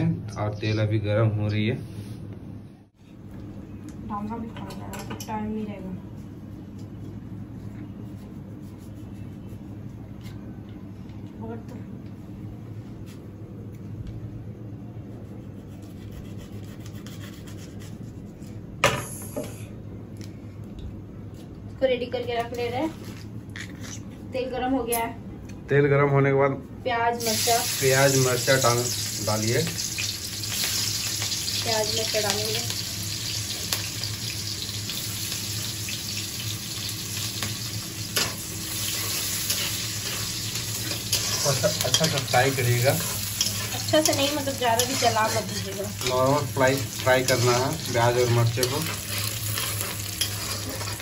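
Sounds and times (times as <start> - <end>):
steady low hum: 0.0 - 51.0
onions sizzling in oil: 27.2 - 51.0.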